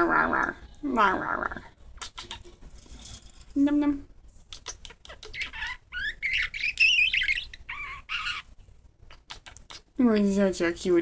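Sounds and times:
budgerigar warbling: 5.0s - 8.5s.

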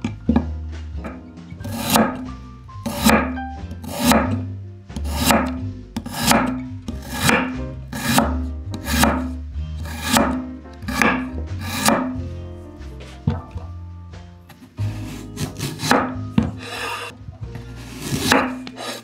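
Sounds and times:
background music: 0.0s - 19.0s
knife cutting vegetables on board: 1.6s - 12.2s, 14.5s - 19.0s.

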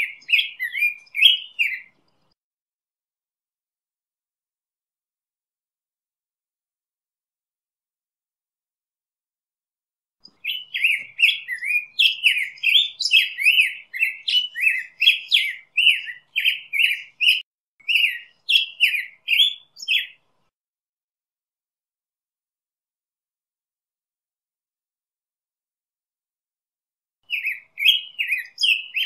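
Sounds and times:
bird singing: 0.0s - 2.4s, 10.2s - 20.3s, 27.2s - 29.0s.

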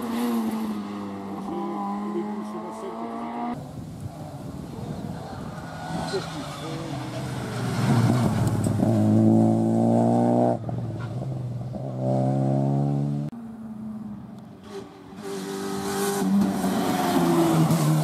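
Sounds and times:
rally car engine at high revs: 5.8s - 10.8s, 14.6s - 18.0s.

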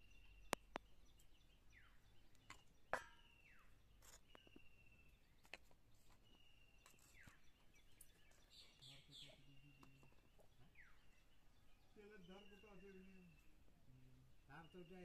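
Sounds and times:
distant bird calling: 6.2s - 15.0s.

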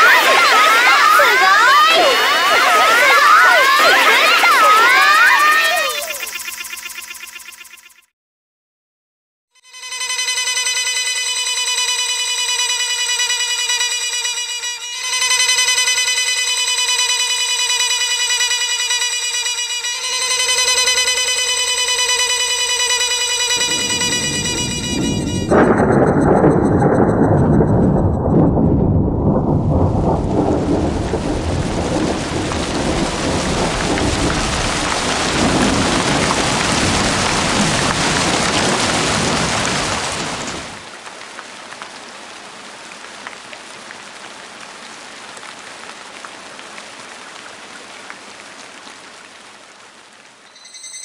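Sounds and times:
heavy rain downpour: 0.0s - 6.3s, 19.9s - 50.5s
thunderclap with rolling rumble: 23.6s - 40.8s.

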